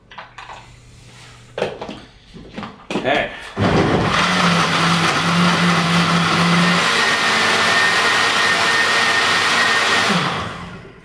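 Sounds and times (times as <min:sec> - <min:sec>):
blender running: 0:03.6 - 0:11.0.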